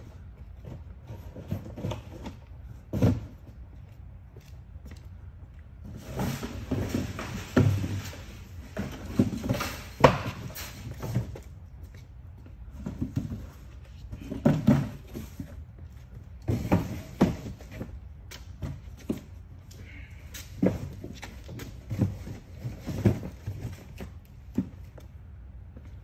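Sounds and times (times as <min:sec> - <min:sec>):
cardboard boxes thumping: 0:00.7 - 0:03.5, 0:05.9 - 0:11.5, 0:12.7 - 0:15.5, 0:16.4 - 0:17.9.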